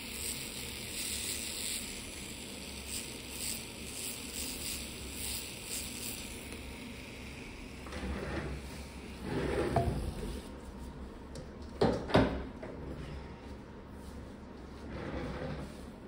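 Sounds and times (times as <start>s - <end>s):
rotary drill sanding skin: 0.0s - 7.8s.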